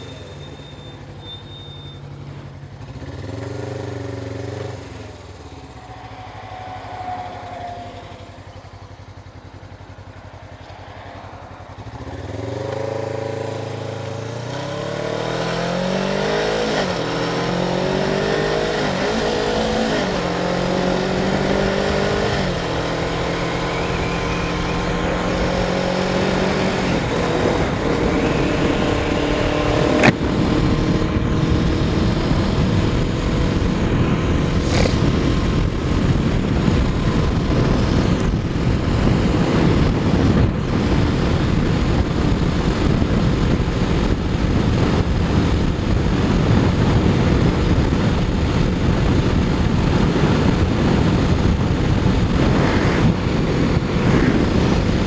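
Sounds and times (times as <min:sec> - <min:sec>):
motorcycle engine accelerating: 0:00.0 - 0:55.0
wind noise on helmet: 0:15.8 - 0:55.0.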